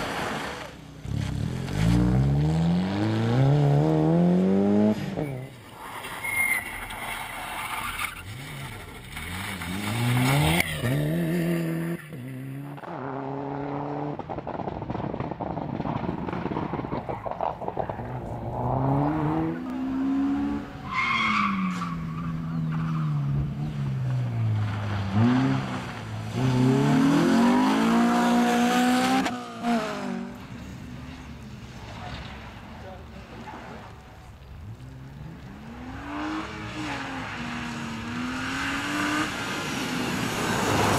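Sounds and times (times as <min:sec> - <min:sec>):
car engines revving: 0:00.0 - 0:40.9
tyre squeal: 0:05.2 - 0:09.5.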